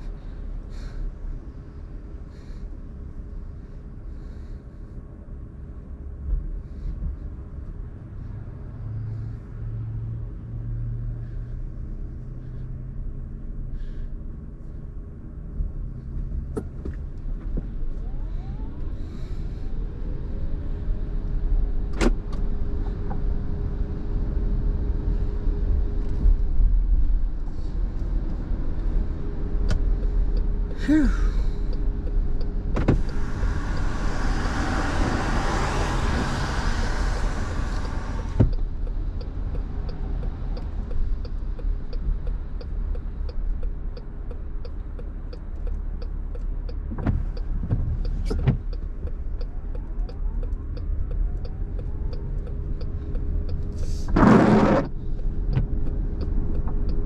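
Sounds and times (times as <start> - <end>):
engine and tyre rumble: 0.0 - 57.0
light even ticking: 29.6 - 34.0, 37.7 - 53.8, 55.2 - 57.0.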